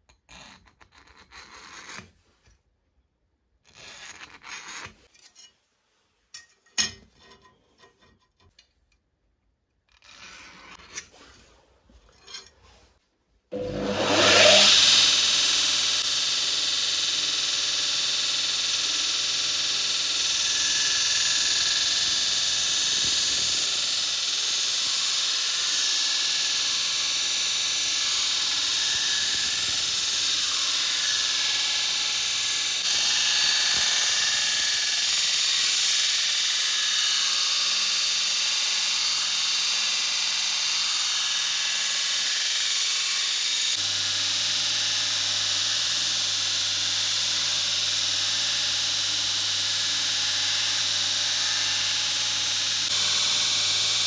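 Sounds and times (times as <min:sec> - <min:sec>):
file scraping steel blade: 0:00.0 - 0:02.4, 0:03.6 - 0:08.7, 0:09.9 - 0:15.6
belt grinder grinding steel: 0:13.5 - 0:54.0.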